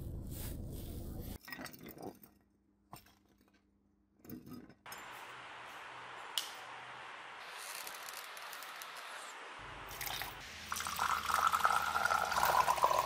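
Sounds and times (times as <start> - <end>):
steady hiss: 4.9 - 13.0.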